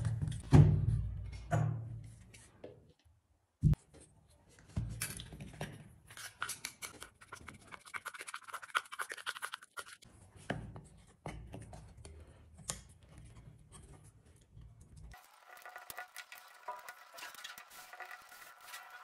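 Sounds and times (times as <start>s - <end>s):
spatula scraping metal bowl: 15.5s - 19.0s.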